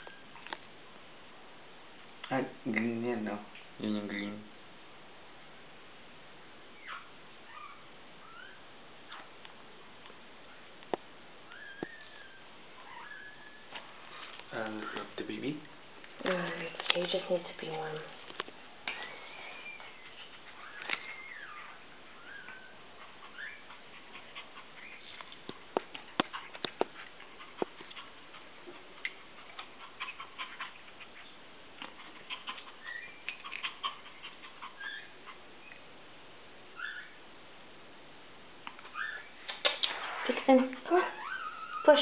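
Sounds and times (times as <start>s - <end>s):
dog whimpering: 6.8s - 9.2s, 11.5s - 13.8s, 18.9s - 25.2s, 32.1s - 35.8s, 36.8s - 37.2s, 38.7s - 39.4s, 40.8s - 42.0s.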